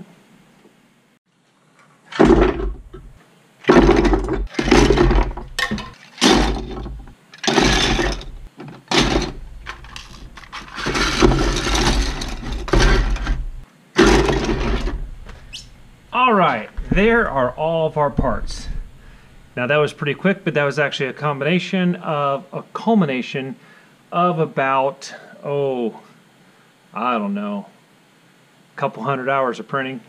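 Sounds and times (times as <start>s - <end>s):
plastic parts clattering on wood: 2.1s - 15.9s.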